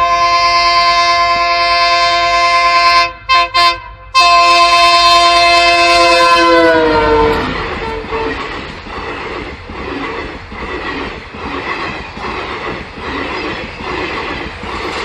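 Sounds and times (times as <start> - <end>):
train horn blast: 0.0 - 8.6.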